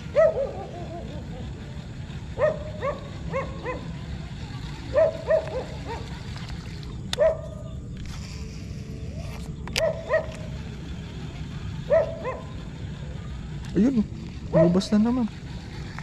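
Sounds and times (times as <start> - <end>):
dog barking: 0.2 - 0.7, 2.4 - 3.8, 5.0 - 6.0, 7.2 - 7.5, 9.8 - 10.4, 11.9 - 12.5, 14.5 - 14.8.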